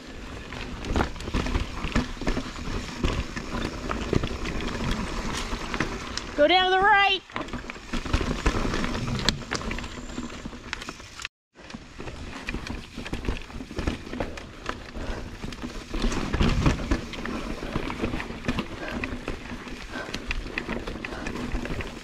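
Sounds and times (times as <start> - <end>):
bike knocking and rattling: 0.0 - 22.0.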